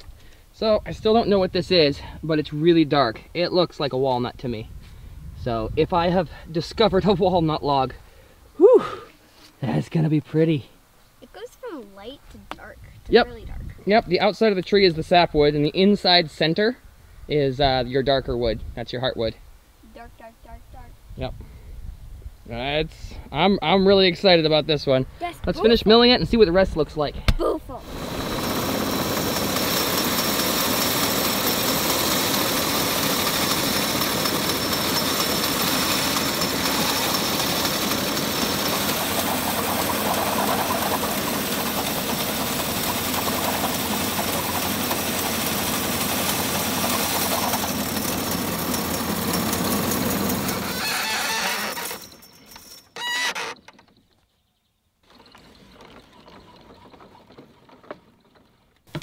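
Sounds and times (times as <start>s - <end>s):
bandsaw cutting log: 27.8s - 52.2s, 53.0s - 53.6s.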